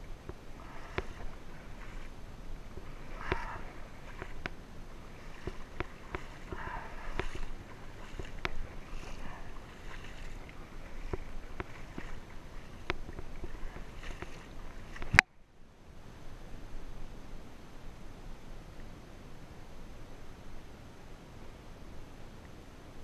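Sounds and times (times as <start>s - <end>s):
hand splashing water: 2.7s - 15.2s.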